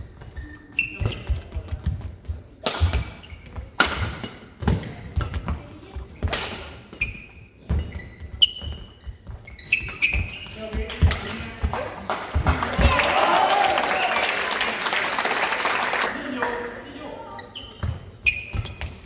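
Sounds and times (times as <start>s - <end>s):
shoes squeaking on court floor: 0.0s - 6.2s, 6.8s - 12.5s, 17.0s - 19.0s
rackets striking shuttlecock: 2.6s - 5.6s.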